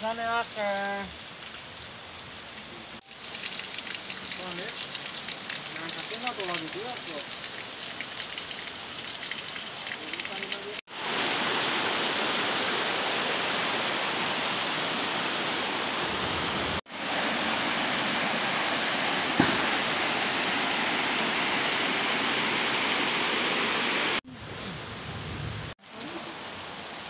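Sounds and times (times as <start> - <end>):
stream rushing over stones: 2.6 - 24.2.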